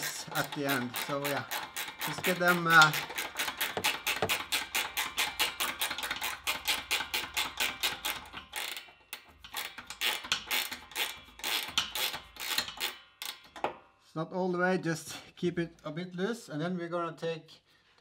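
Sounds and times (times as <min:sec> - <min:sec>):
ratchet spanner clicking: 0:00.0 - 0:13.7.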